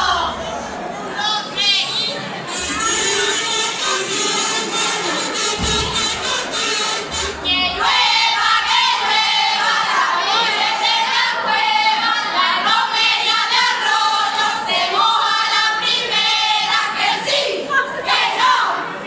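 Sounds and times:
women singing in chorus: 5.6 - 18.9.

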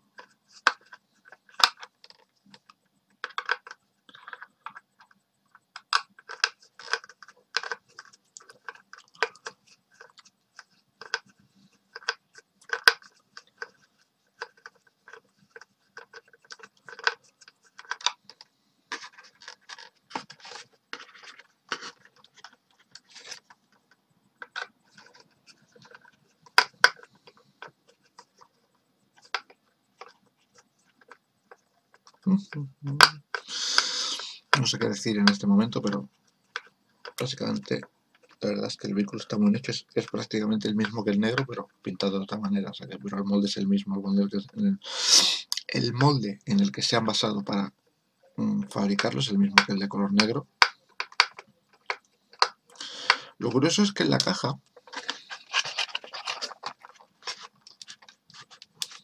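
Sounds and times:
screwdriver scratching plastic: 54.8 - 59.0.

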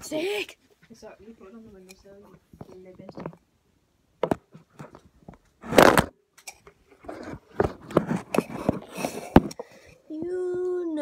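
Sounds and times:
phone handling knocks and scrapes: 5.6 - 6.1, 7.0 - 9.6.

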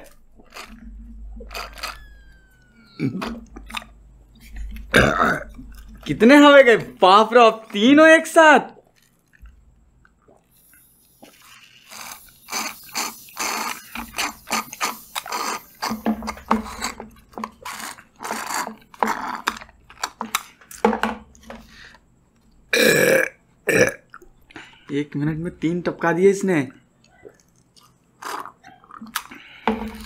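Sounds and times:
slurping through straws: 0.0 - 6.1, 10.3 - 20.2, 28.2 - 30.0.

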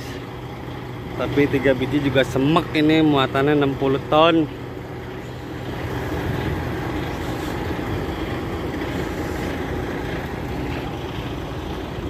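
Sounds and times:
truck diesel engine droning: 0.0 - 12.0.

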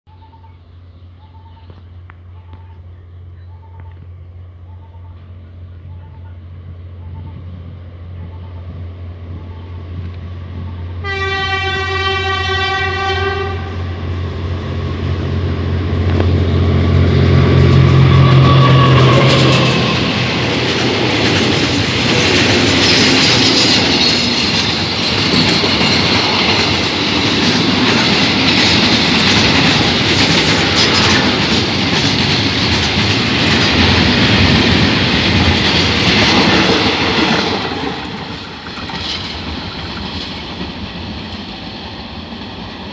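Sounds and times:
locomotive engine drone: 0.1 - 42.9
locomotive horn blast: 10.6 - 14.1, 16.8 - 20.4
train wheels clattering: 15.9 - 42.9.

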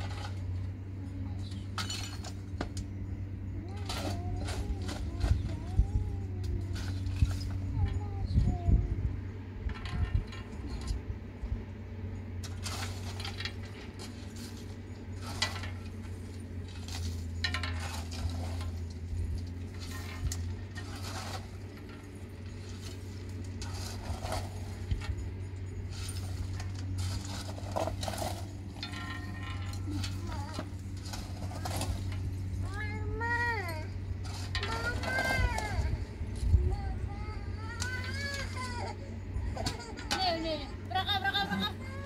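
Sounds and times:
steady low hum: 0.0 - 42.0
small hard objects clinking: 12.4 - 33.3.

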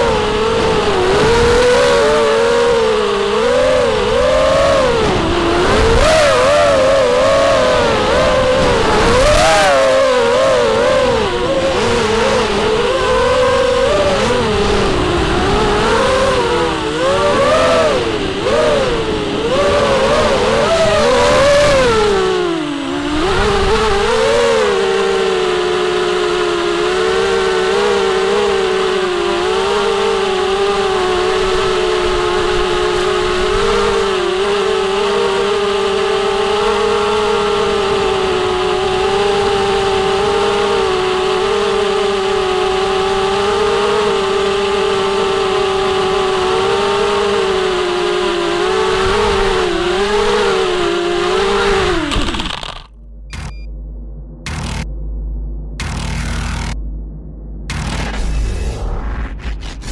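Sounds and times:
quadcopter motors whining: 0.0 - 53.7, 54.5 - 54.9, 55.8 - 56.8.

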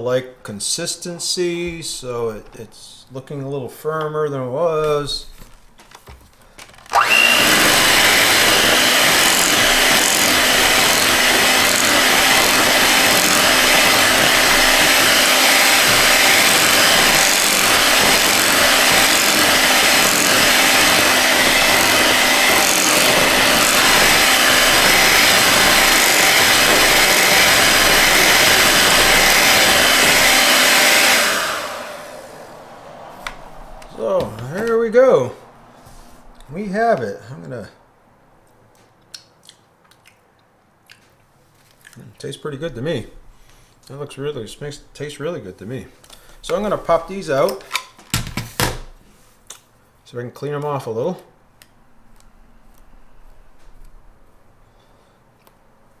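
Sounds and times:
electric hand mixer running: 6.8 - 32.5
mixer motor winding down: 6.8 - 32.6.

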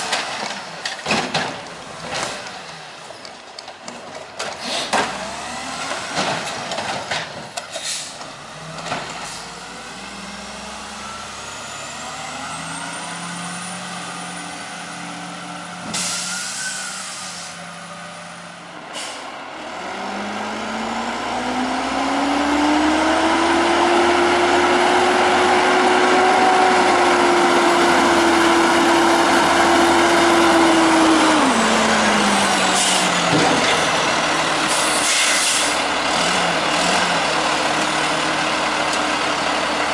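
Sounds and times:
garbage truck engine revving: 4.7 - 7.3, 8.3 - 39.9
hiss of air: 34.7 - 35.8.

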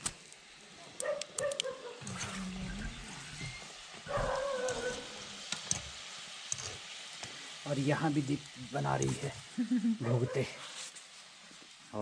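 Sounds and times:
frying in oil sizzle: 0.0 - 1.1, 1.9 - 12.0
animal calls: 4.1 - 5.3.

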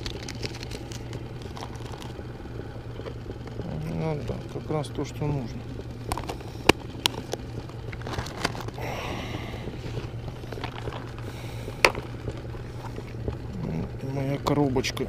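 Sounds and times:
plastic rustling: 0.0 - 2.3, 6.1 - 8.9, 9.7 - 13.5
steady low hum: 0.0 - 15.0.

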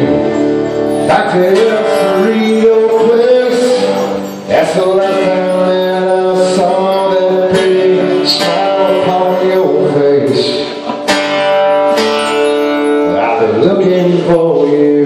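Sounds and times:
electric guitars: 0.0 - 15.0.

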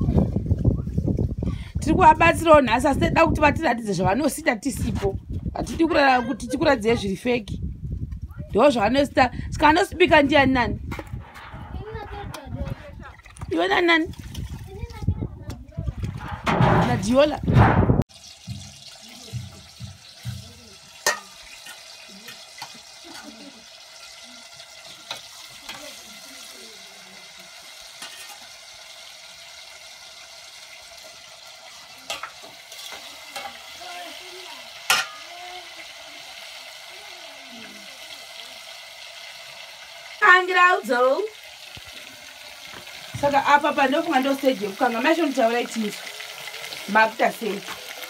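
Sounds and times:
person talking: 1.8 - 7.5
food frying in hot oil: 18.1 - 48.0.

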